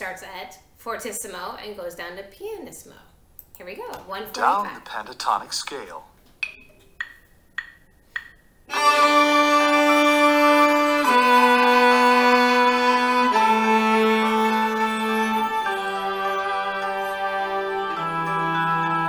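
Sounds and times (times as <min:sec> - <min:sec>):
count-in clicks: 0:06.4 - 0:08.4
cello bowing long notes: 0:08.7 - 0:19.0.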